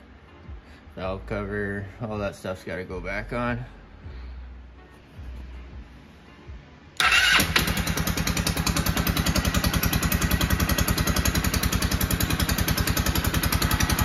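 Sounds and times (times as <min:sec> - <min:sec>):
motorcycle engine starting and idling: 0:07.0 - 0:14.0.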